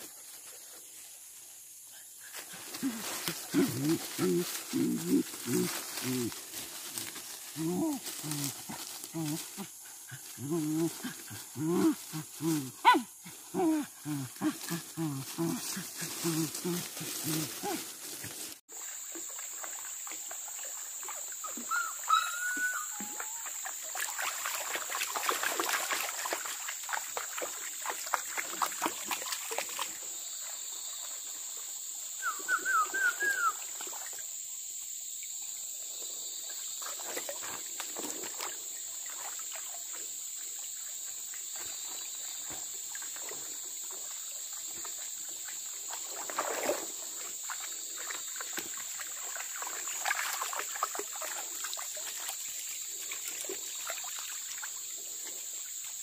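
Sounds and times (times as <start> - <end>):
person wading splashing: 2.4 - 21.6, 23.2 - 30.0, 36.8 - 40.0, 42.5 - 54.7
rising whistled calls: 21.7 - 23.4, 32.2 - 33.6.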